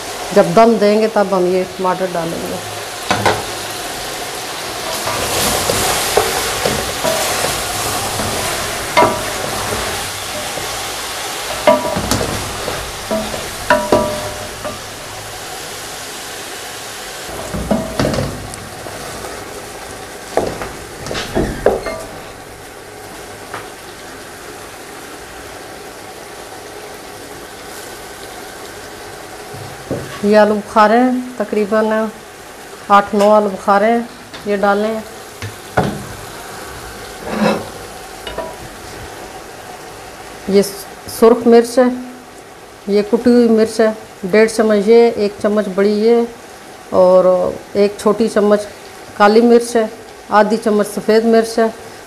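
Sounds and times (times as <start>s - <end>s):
food sizzling in a pot: 0.0s - 52.0s
wooden spoon scraping and knocking pot: 4.9s - 10.9s, 11.5s - 14.9s.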